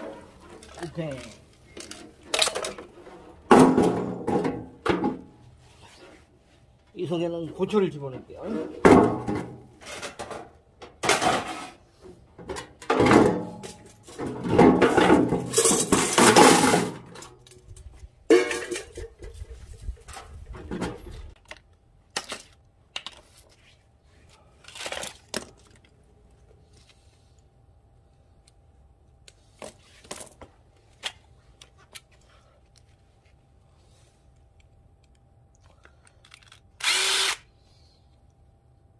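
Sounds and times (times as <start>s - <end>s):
scrap metal clanging into casing: 8.5s - 11.8s, 12.5s - 17.4s.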